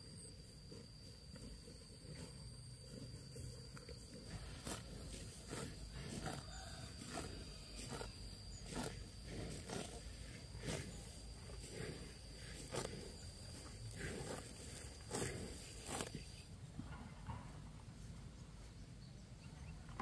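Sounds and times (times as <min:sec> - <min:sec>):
buffalo tearing grass: 0:00.7 - 0:16.4.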